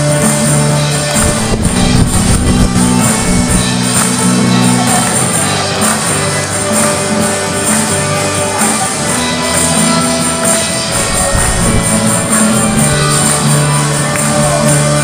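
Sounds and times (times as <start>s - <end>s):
bass guitar: 0.0s - 15.0s
strummed acoustic guitar: 0.0s - 15.0s.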